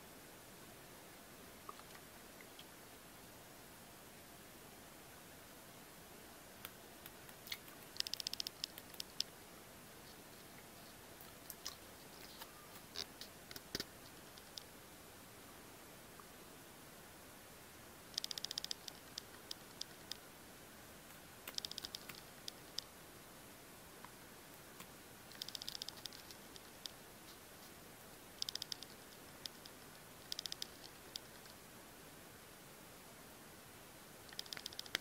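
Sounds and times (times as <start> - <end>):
pigeon pecking soil clicks: 6.6 - 9.3, 10.1 - 14.7, 18.2 - 20.2, 21.0 - 22.9, 24.5 - 27.8, 28.4 - 31.6, 34.3 - 35.0.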